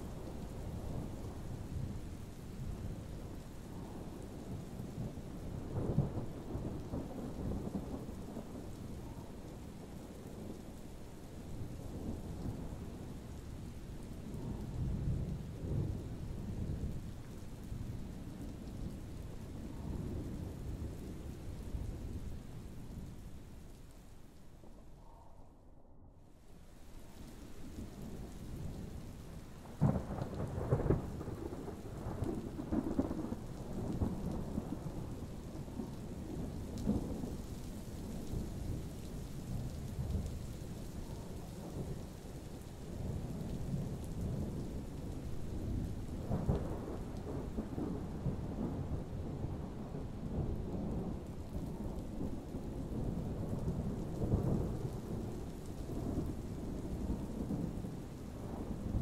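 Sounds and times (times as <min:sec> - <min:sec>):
steady rain: 0:00.0 - 0:25.3, 0:26.2 - 0:59.0
thunder rumbling: 0:27.4 - 0:59.0.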